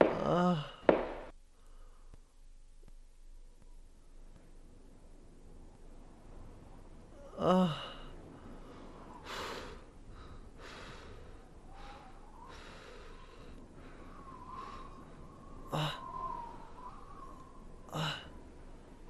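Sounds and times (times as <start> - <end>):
man groaning: 7.2 - 8.0, 15.7 - 16.1, 17.9 - 18.3
man breathing heavily and gasping: 7.4 - 15.1, 15.7 - 16.2.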